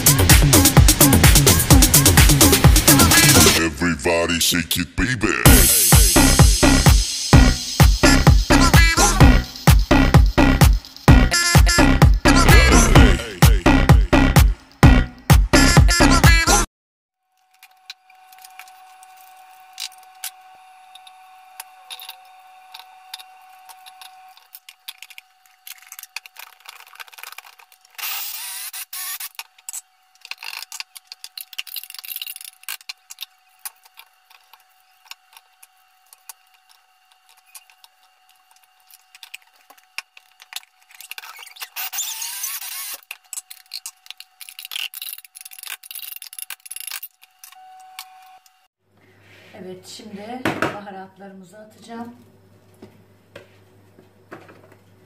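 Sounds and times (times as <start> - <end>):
electric chopper motor whirring: 18.0 - 48.6.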